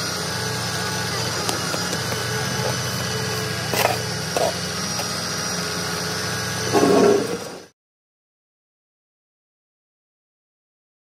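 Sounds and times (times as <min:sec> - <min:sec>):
truck engine running: 0:00.0 - 0:07.7.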